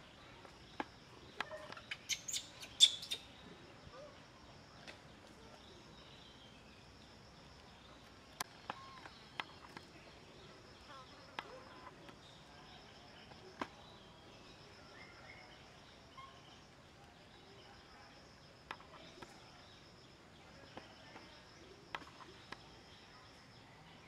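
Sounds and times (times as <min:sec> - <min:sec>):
insect trilling: 0:01.4 - 0:03.4.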